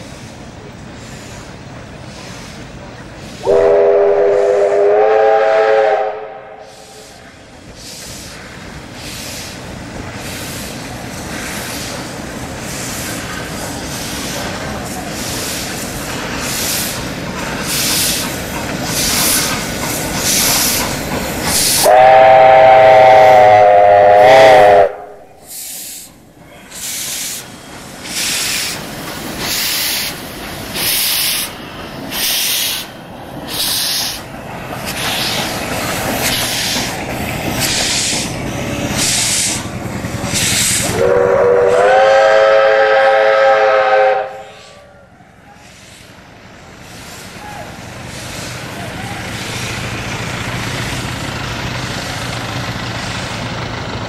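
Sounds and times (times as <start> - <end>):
steam locomotive exhaust chuffs: 0.0 - 54.0
steam whistle blasts: 3.4 - 7.2, 21.7 - 26.0, 40.8 - 45.0.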